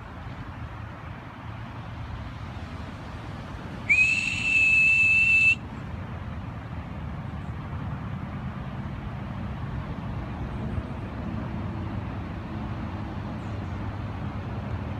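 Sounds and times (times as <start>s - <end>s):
high whistle note: 3.9s - 5.6s.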